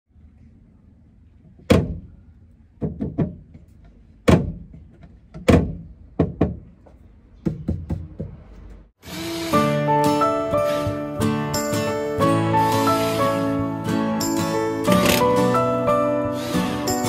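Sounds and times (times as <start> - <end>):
wooden cabinet door knocks: 5.4 - 6.6.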